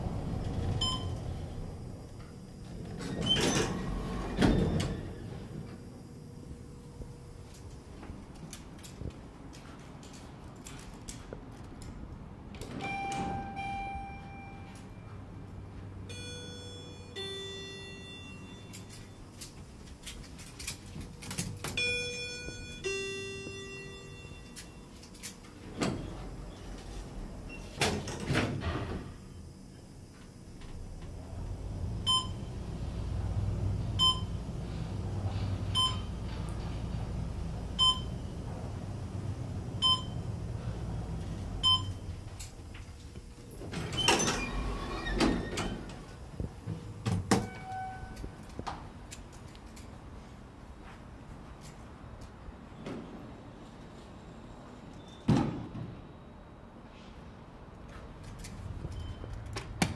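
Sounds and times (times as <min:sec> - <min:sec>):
elevator doors sliding: 0:00.0 - 0:11.1, 0:12.6 - 0:29.4, 0:30.0 - 0:50.0
elevator hum: 0:00.0 - 0:55.2
elevator chime tones: 0:00.8 - 0:01.3, 0:12.8 - 0:15.2, 0:16.0 - 0:19.3, 0:21.7 - 0:25.0, 0:34.0 - 0:34.5, 0:35.8 - 0:36.2, 0:37.8 - 0:38.4.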